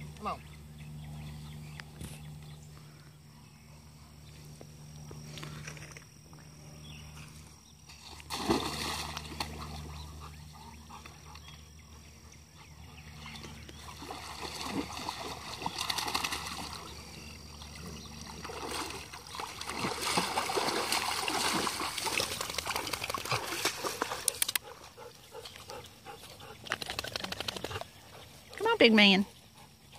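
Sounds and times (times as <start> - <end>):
pond water splashing: 7.9 - 10.0, 13.8 - 24.6.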